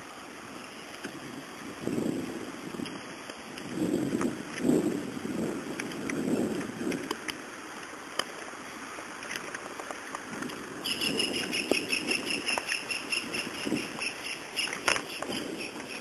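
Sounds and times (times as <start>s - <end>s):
wind rumble on microphone: 0.0s - 16.0s
high-pitched animal chirping: 10.8s - 16.0s.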